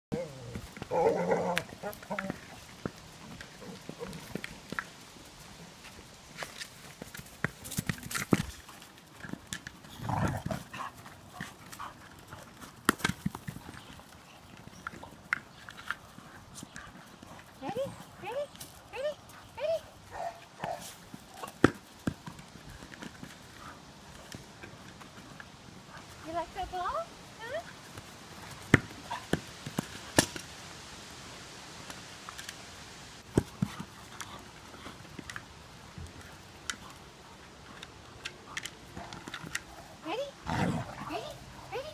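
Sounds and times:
paws and plastic ball thumping: 0:05.8 - 0:17.8, 0:27.9 - 0:30.4, 0:33.2 - 0:37.0.

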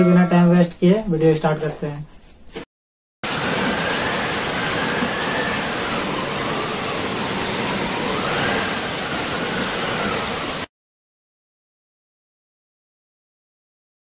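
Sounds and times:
synthesized rushing noise: 0:03.2 - 0:10.7.

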